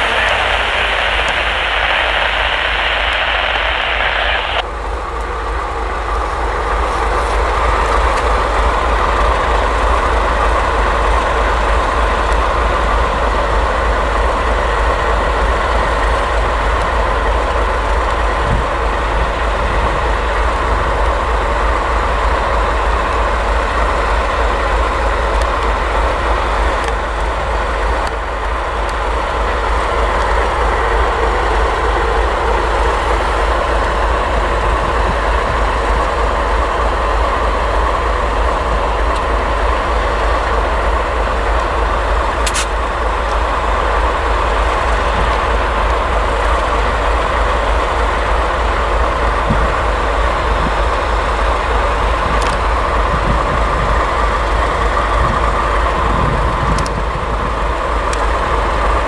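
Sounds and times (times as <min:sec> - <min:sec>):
hiss: 0:00.0 - 0:04.6
diesel locomotives rumbling: 0:00.0 - 0:59.0.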